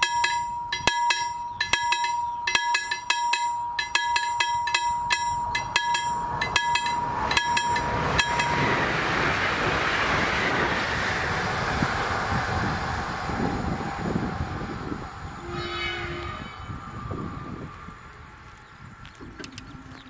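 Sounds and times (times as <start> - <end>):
level crossing bell ringing: 0.0 - 8.8
train rushing past: 5.0 - 19.0
steady electronic tone: 15.2 - 18.4.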